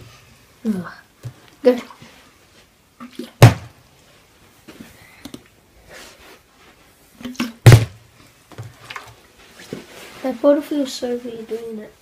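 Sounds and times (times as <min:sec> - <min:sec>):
plastic bottle landing thud: 0:03.4 - 0:03.8, 0:07.4 - 0:08.0.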